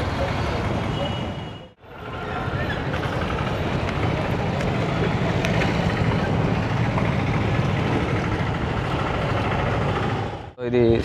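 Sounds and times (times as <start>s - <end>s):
motorcycle engine and road rumble: 2.2s - 10.6s.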